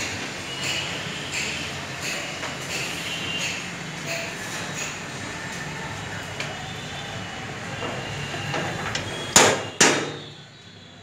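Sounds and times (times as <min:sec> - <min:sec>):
steady background noise: 0:00.0 - 0:11.0
sharp ringing knocks: 0:09.2 - 0:10.3.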